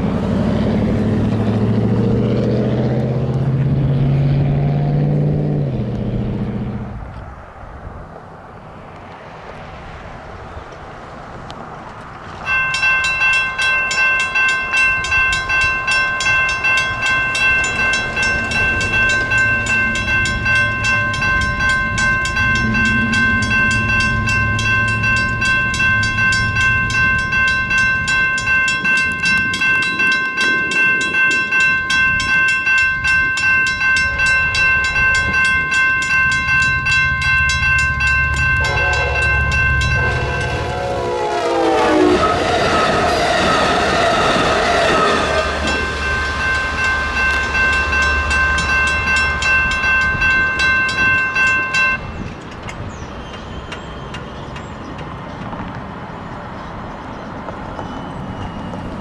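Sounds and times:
low train rumble: 0:00.0 - 0:59.0
railroad crossing bell ringing: 0:12.3 - 0:55.5, 0:56.1 - 0:59.0
locomotive horn: 0:37.8 - 0:48.6.

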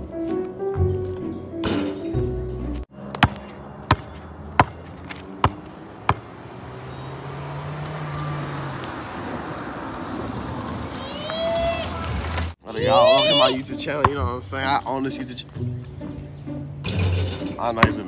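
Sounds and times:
basketball bouncing on asphalt: 0:02.9 - 0:10.1, 0:14.0 - 0:14.4, 0:17.7 - 0:18.0
outdoor rushing noise: 0:02.9 - 0:12.6.

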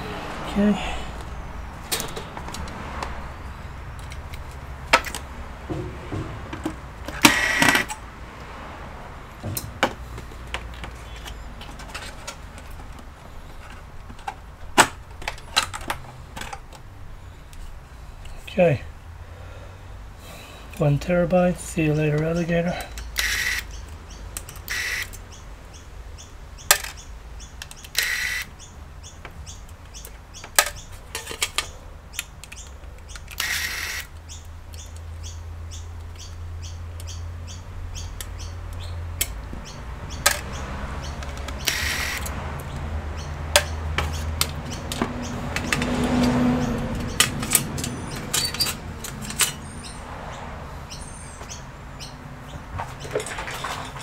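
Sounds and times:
electric screwdriver whirring: 0:07.2 - 0:07.9, 0:23.2 - 0:23.7, 0:24.7 - 0:25.1, 0:28.0 - 0:28.5, 0:33.4 - 0:34.1, 0:41.6 - 0:42.2
screws clattering: 0:47.0 - 0:49.7, 0:53.0 - 0:54.0.

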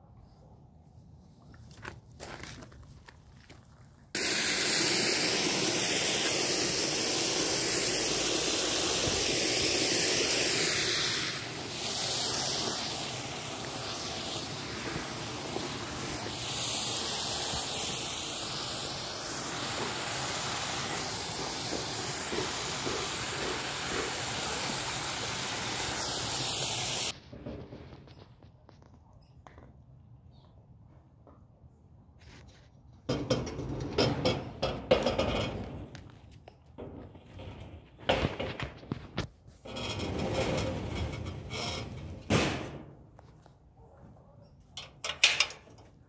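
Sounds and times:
loud steady hiss: 0:04.2 - 0:27.2.

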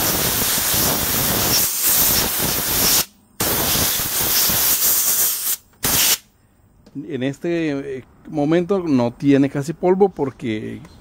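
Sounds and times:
compressed air hissing: 0:00.0 - 0:06.3.

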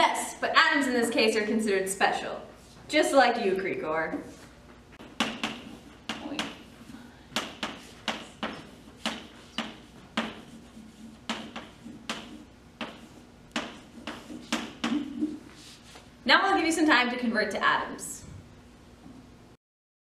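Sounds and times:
chalk tapping and scraping on board: 0:04.2 - 0:16.0.

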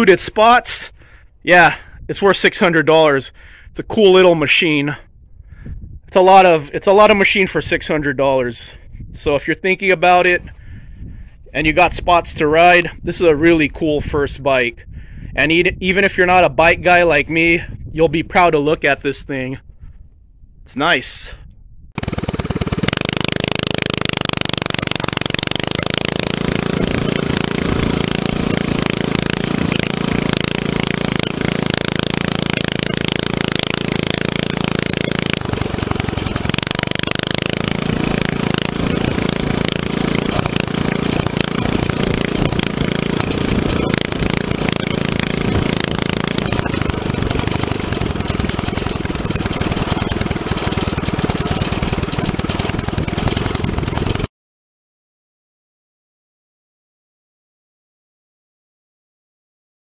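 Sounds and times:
wind and road noise: 0:03.3 - 0:54.3
mini bike engine running: 0:22.0 - 0:54.3.

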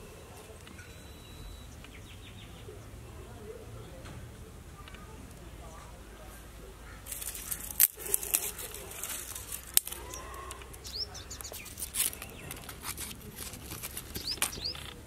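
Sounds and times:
bird chirps: 0:00.1 - 0:02.9, 0:10.0 - 0:12.7, 0:14.1 - 0:15.0
twigs crackling in fire: 0:06.8 - 0:15.0.

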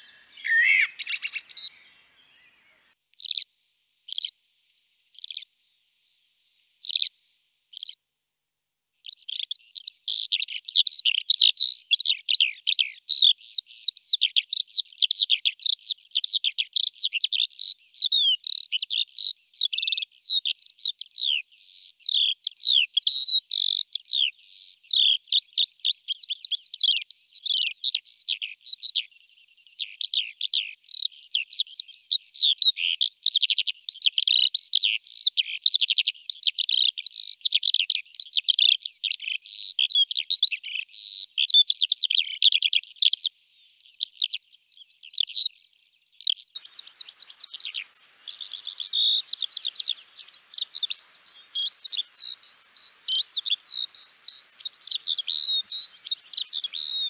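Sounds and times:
lark singing: 0:00.0 - 0:02.9, 0:46.6 - 0:57.0.

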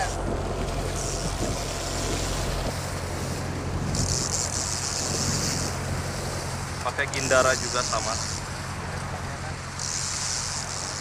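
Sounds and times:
wind on microphone: 0:00.0 - 0:06.8
boat engine humming: 0:00.0 - 0:11.0.

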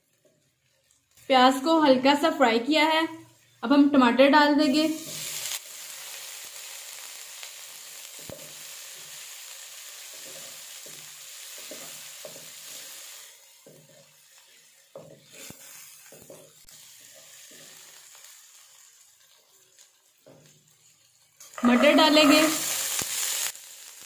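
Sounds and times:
vegetables sizzling in oil: 0:00.0 - 0:24.0
wooden spatula scraping wok: 0:04.7 - 0:05.6, 0:10.0 - 0:18.2, 0:19.5 - 0:23.5.

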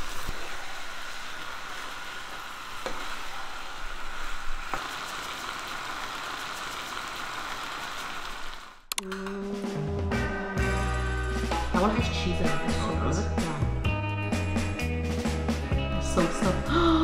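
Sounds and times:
food sizzling in a pan: 0:00.0 - 0:08.8.

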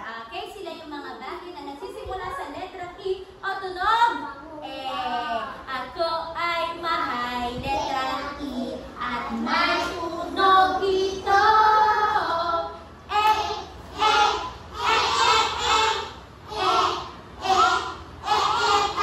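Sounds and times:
children singing along: 0:07.7 - 0:19.0.

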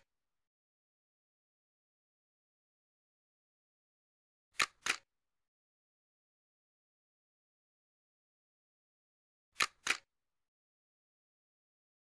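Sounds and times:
sharp clicks: 0:04.6 - 0:05.1, 0:09.6 - 0:10.1.

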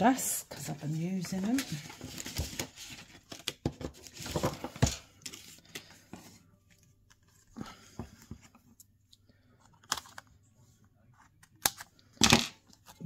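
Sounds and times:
paper rustling: 0:01.0 - 0:06.4.

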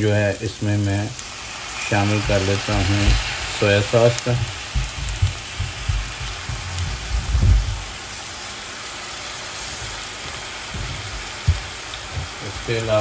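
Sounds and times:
vegetables sizzling in a wok: 0:00.0 - 0:13.0
low thumps: 0:04.2 - 0:08.1, 0:09.8 - 0:12.7.

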